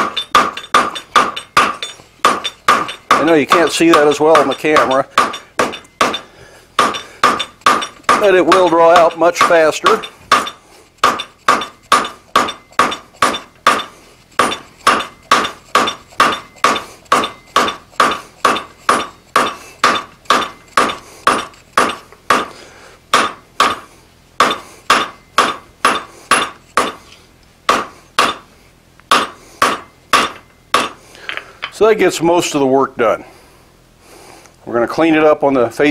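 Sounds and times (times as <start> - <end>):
hammer striking hot steel on anvil: 0.0 - 22.5, 23.1 - 27.0, 27.7 - 28.5, 29.1 - 31.8.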